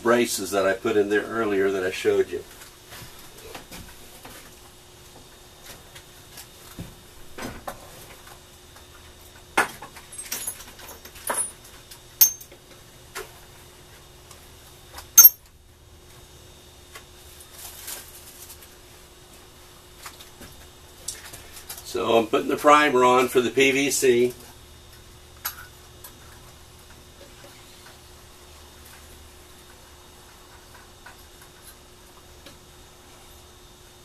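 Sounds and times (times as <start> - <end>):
sharp clink: 12.2 - 12.5, 15.2 - 15.4.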